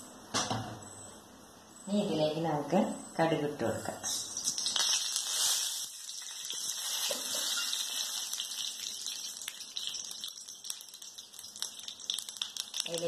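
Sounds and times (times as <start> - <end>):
seeds sizzling in hot oil: 4.1 - 13.0
small crackling pops: 8.2 - 13.0.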